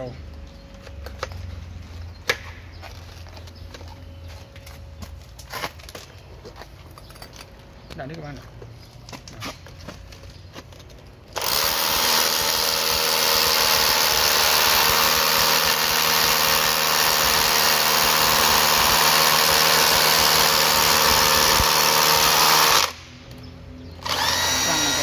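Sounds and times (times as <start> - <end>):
rotary hammer drilling into concrete: 11.3 - 23.0, 24.0 - 25.0.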